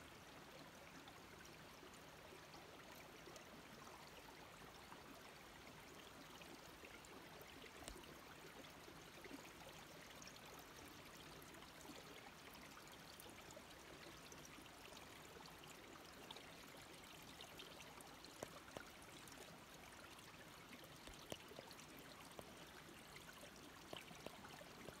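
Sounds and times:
water trickling over ice: 0.7s - 25.0s
small ticks: 7.8s - 8.1s, 17.2s - 25.0s.

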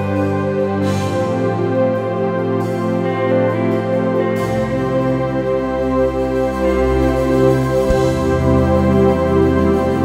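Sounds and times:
slow instrumental worship music: 0.0s - 10.0s.

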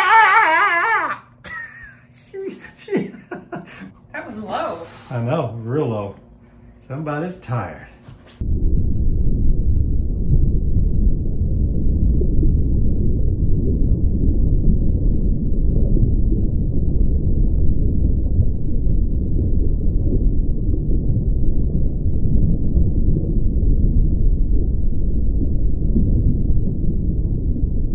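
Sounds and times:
muffled low rumble: 8.3s - 27.9s.

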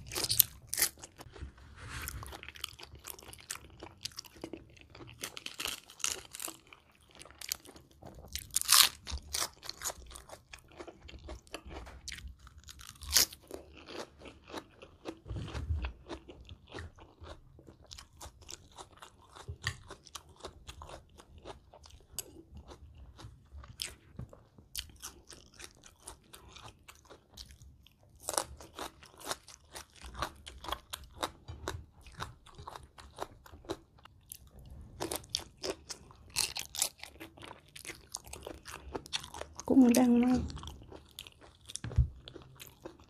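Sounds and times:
chewing and crunching food: 0.0s - 43.0s.

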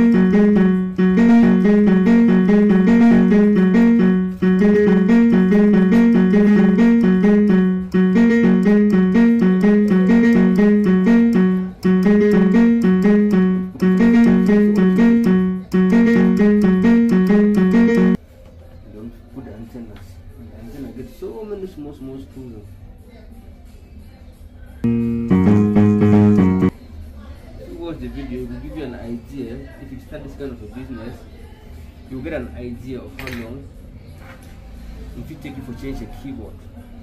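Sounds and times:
keyboard background music: 0.0s - 18.2s, 24.8s - 26.7s.

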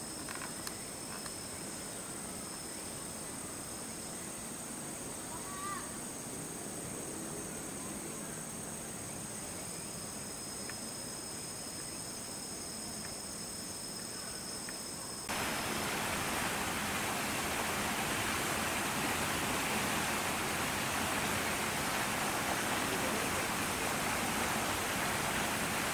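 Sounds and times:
insects trilling: 0.0s - 25.9s
soft hiss: 7.7s - 25.9s
rushing hiss: 15.2s - 25.9s.

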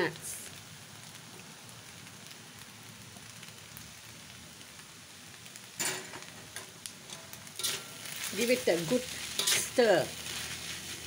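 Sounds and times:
noodles sizzling in a wok: 0.0s - 11.0s
metal spatula scraping a wok: 5.8s - 11.0s.

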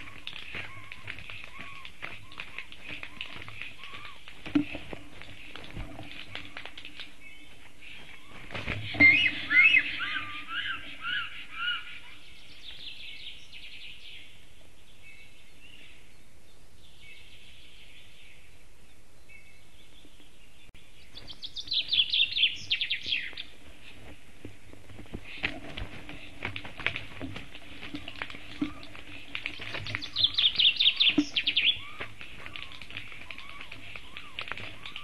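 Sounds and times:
rustling: 0.0s - 12.9s, 21.1s - 35.0s
birds chirping: 0.0s - 35.0s.

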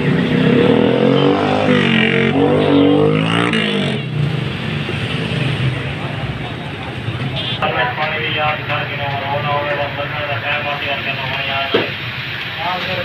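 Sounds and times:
vehicle engine revving: 0.0s - 7.6s
busy street noise: 0.0s - 13.0s.

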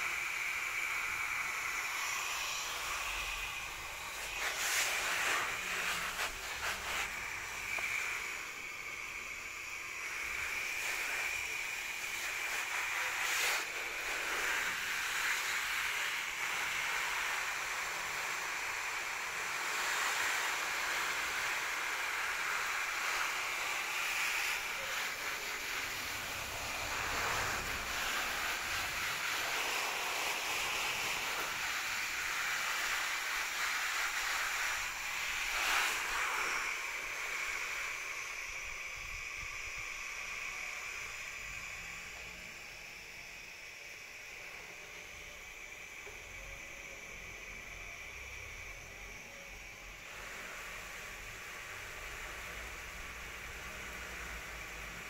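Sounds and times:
hose nozzle spraying onto leaves: 0.0s - 8.4s, 10.1s - 38.0s.

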